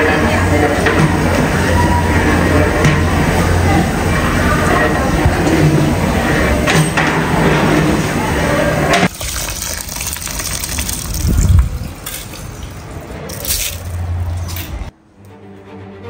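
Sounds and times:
rice sloshing in water: 0:09.1 - 0:14.6.

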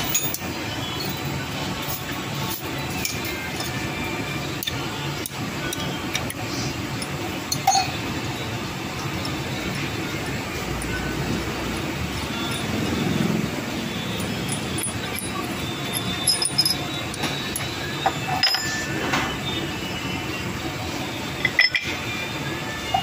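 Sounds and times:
steady background hum: 0:00.0 - 0:23.0
metal clinks and taps: 0:14.1 - 0:19.2, 0:21.4 - 0:22.0.

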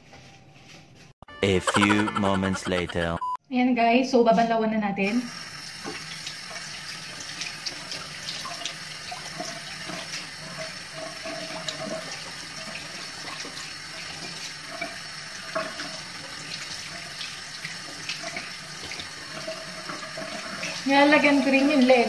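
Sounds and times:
tap water running into sink: 0:05.2 - 0:22.0.

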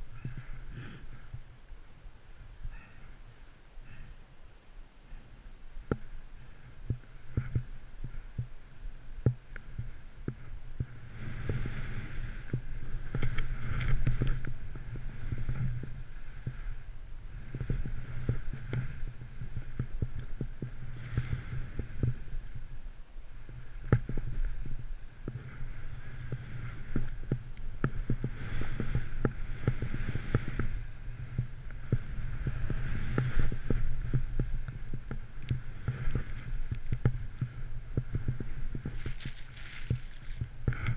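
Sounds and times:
low rumble of wind and movement: 0:00.0 - 0:40.9
hiss of snow: 0:10.9 - 0:19.2, 0:38.3 - 0:40.9.

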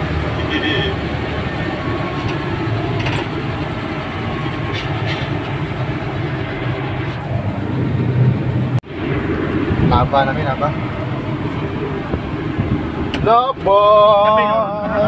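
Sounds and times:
truck engine and road rumble: 0:00.0 - 0:15.0.

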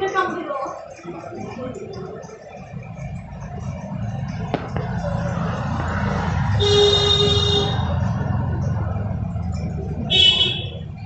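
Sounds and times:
low rumble of road traffic: 0:01.7 - 0:11.0
vehicle horn: 0:06.5 - 0:08.0, 0:10.1 - 0:10.9.

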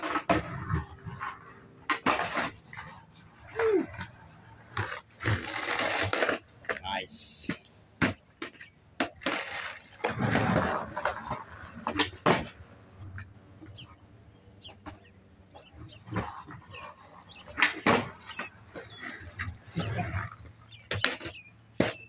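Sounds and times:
skateboard clicks: 0:00.0 - 0:13.8
skateboard sharp clacks: 0:00.0 - 0:13.8, 0:15.7 - 0:22.0
skateboard wheels rolling on concrete: 0:00.0 - 0:22.0.

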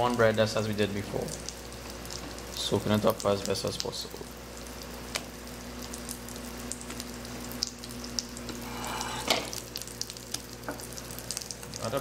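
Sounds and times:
bread sizzling in a pan: 0:00.0 - 0:12.0
batter dripping into a bowl: 0:01.2 - 0:08.6.

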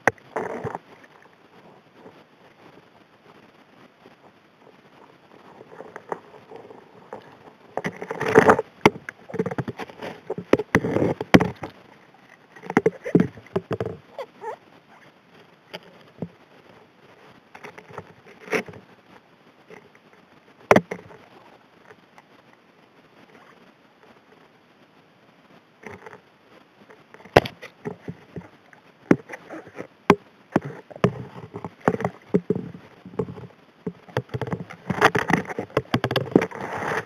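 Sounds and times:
rocks clattering underwater: 0:00.0 - 0:02.7, 0:04.2 - 0:14.6, 0:20.6 - 0:21.4, 0:26.9 - 0:37.0.

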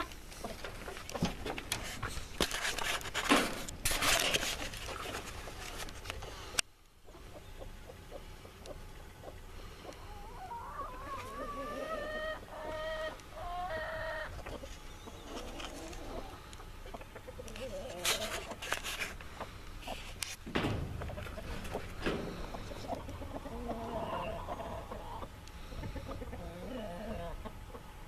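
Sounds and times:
chicken calling: 0:09.8 - 0:18.6, 0:20.8 - 0:27.9.

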